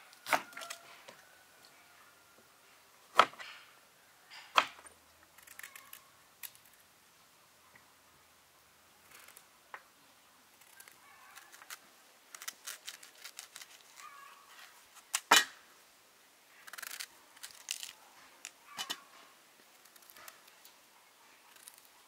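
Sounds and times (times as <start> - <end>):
knife scraping fruit skin: 10.6 - 14.2, 16.6 - 19.1, 19.7 - 20.6, 21.5 - 22.0.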